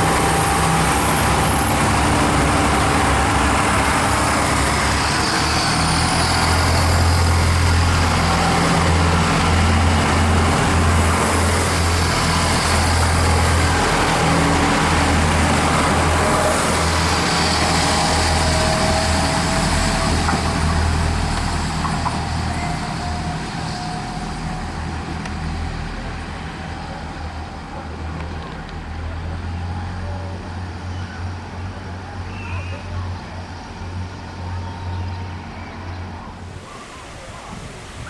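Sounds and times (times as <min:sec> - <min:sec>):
diesel train rumbling past: 0:00.0 - 0:38.0
train approaching: 0:00.0 - 0:38.0.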